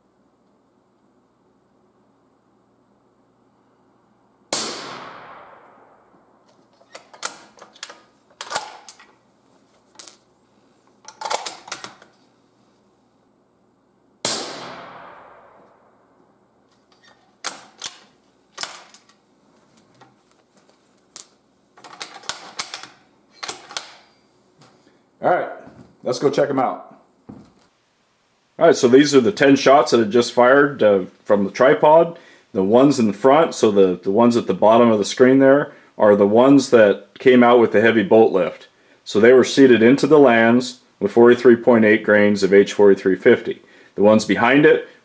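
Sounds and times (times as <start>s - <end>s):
rifle shots ringing in a room: 4.5s - 9.0s, 14.2s - 16.7s.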